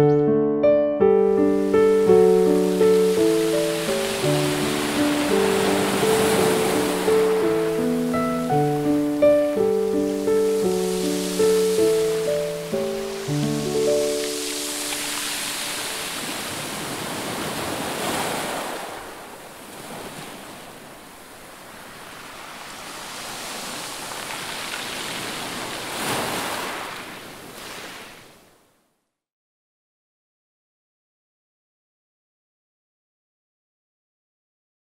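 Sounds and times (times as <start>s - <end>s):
sea waves washing in: 1.3s - 28.6s.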